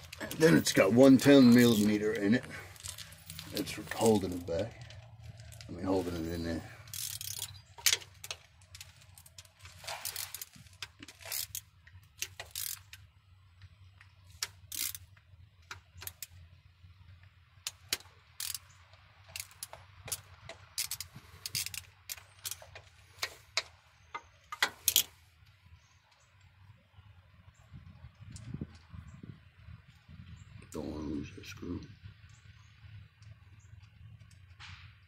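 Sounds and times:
socket ratchet clicking: 6.8s - 8.4s, 11.1s - 13.0s, 14.4s - 15.1s, 17.7s - 18.7s, 19.3s - 25.1s.

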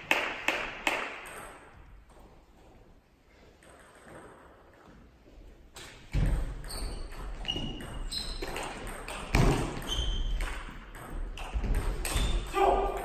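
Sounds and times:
table tennis ball bouncing: 5.8s - 13.0s.

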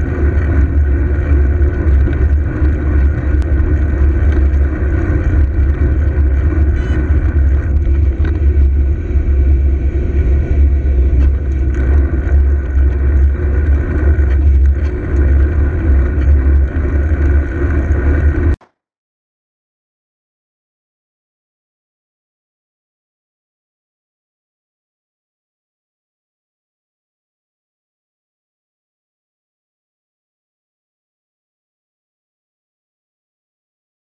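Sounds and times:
road and traffic rumble: 0.0s - 18.6s.

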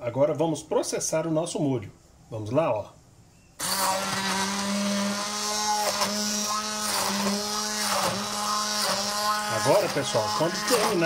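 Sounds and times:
immersion blender humming: 3.6s - 11.0s.

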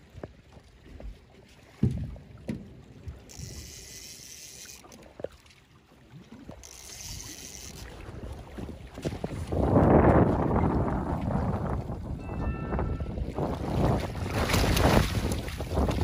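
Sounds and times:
fish splashing in water: 13.6s - 16.0s.

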